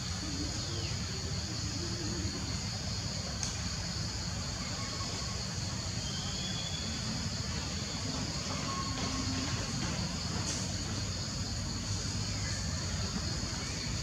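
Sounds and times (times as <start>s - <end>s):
high-pitched insect drone: 4.1s - 14.0s.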